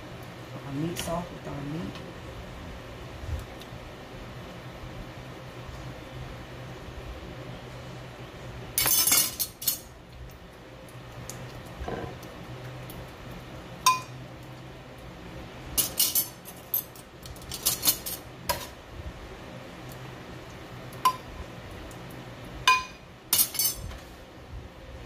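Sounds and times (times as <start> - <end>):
steady low hum: 0.0 - 25.0
metal utensils clinking on pot: 8.8 - 9.8, 15.8 - 18.7, 22.7 - 23.8.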